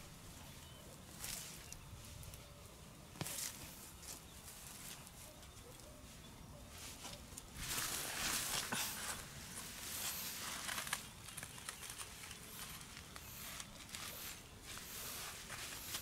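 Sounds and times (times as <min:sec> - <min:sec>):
hands scraping dry soil: 0:06.8 - 0:16.0
soil clods crumbling: 0:07.5 - 0:16.0.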